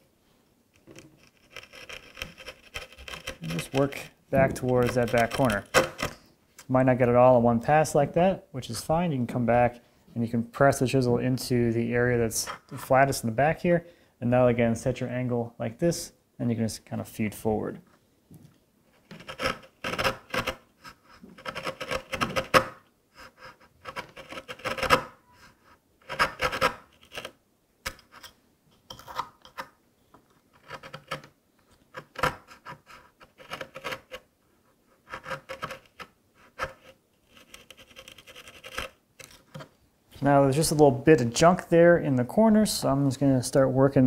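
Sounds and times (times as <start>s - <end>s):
chisel scraping wood: 0.8s - 6.1s, 19.0s - 27.4s, 31.9s - 34.2s, 34.9s - 39.7s.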